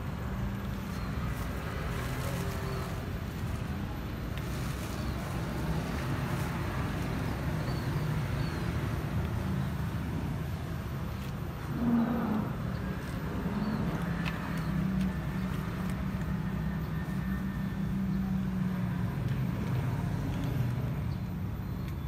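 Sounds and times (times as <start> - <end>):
vehicle engine running: 0.0 - 21.8
cats chewing dry kibble: 12.8 - 18.2.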